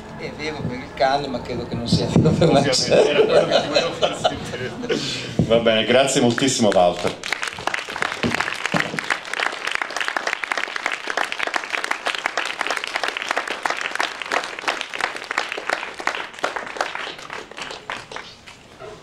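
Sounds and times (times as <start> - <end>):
audience applauding: 5.9 - 18.6.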